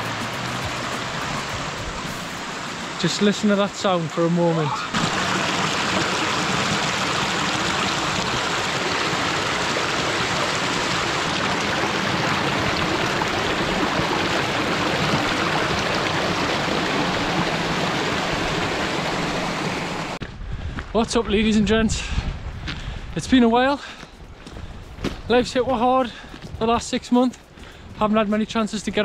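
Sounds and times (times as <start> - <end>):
stream rushing over rocks: 0.0 - 20.2.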